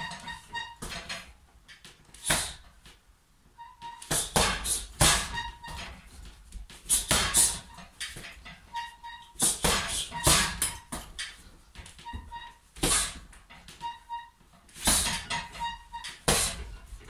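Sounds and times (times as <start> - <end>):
short high squeaks: 0.0 - 1.3, 3.6 - 6.2, 6.9 - 16.9
punches hitting heavy bag: 4.1 - 5.5, 7.0 - 7.6, 9.4 - 11.0, 12.8 - 13.2, 14.8 - 15.4, 16.3 - 16.7.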